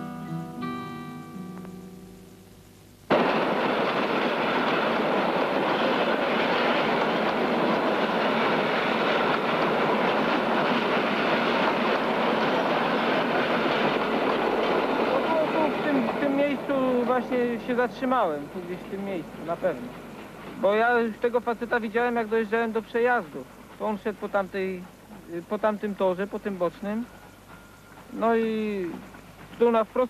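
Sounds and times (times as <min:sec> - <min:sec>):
acoustic guitar chord ringing: 0:00.0 - 0:03.9
train going by: 0:03.1 - 0:30.0.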